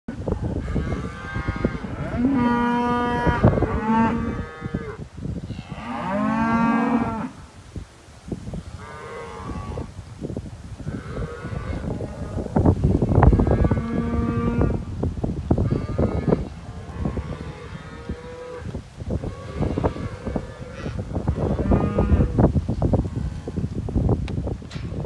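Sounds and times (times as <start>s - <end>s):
cattle mooing: 11.0s - 12.5s, 15.6s - 22.4s.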